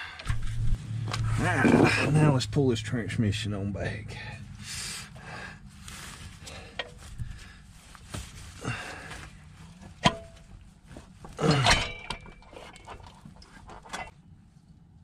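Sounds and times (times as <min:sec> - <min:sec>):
metallic clinks and knocks: 0:11.5 - 0:14.1
metal scraping clunk: 0:11.5 - 0:14.2.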